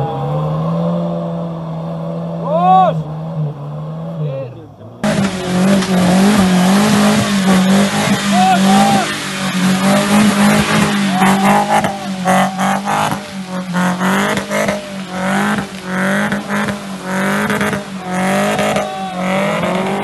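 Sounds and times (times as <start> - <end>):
suv engine working hard: 5.0 - 20.0.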